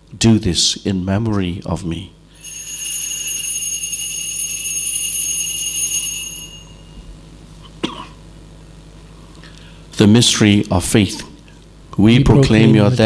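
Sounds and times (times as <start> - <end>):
altar bells ringing: 2.4 - 7.4.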